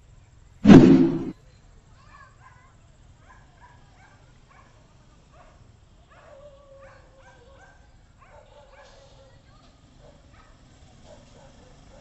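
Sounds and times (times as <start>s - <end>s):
dog barking and yelping: 6.1s - 9.1s.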